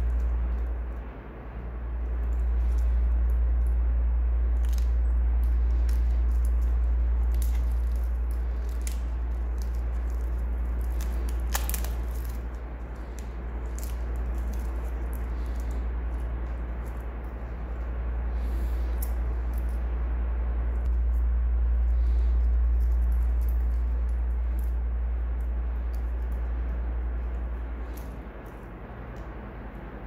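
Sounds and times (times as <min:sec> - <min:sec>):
steady low hum: 0:00.0 - 0:30.0
plastic film crinkling: 0:04.5 - 0:19.8.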